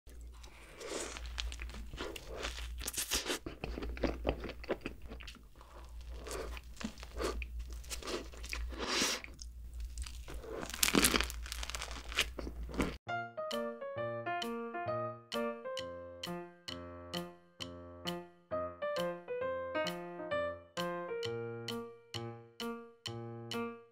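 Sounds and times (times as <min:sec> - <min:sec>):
biting into soft pastries: 0:00.1 - 0:13.0
chewing: 0:00.1 - 0:13.0
crunching bread crust: 0:00.3 - 0:13.0.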